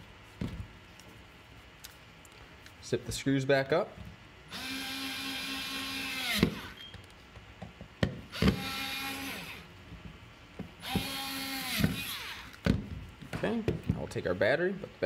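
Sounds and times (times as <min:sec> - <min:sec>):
electric screwdriver motor whine: 0:04.5 - 0:06.9, 0:08.4 - 0:09.6, 0:10.8 - 0:12.6.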